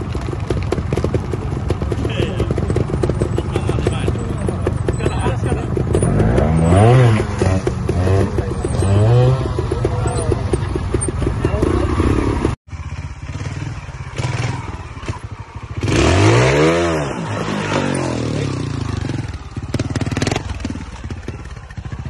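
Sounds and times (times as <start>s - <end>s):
motorcycle engine at low revs: 0.0s - 22.0s.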